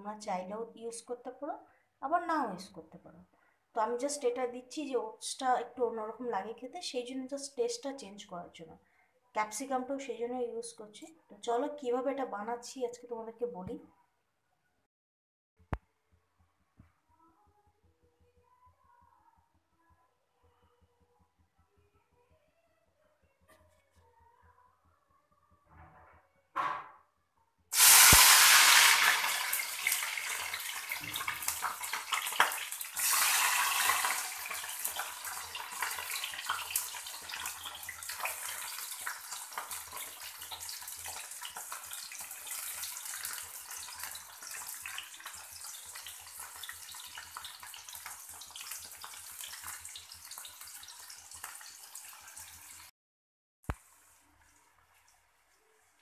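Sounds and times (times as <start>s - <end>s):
vegetables sizzling in hot oil: 27.7s - 52.9s.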